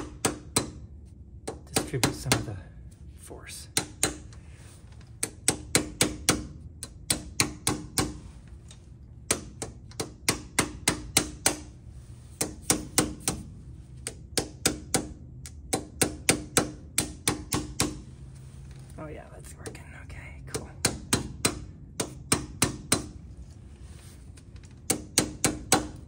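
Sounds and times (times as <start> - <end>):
hammer tapping on metal: 0.0 - 0.8, 1.4 - 2.6, 3.7 - 4.3, 5.2 - 8.2, 9.3 - 11.7, 20.5 - 23.2.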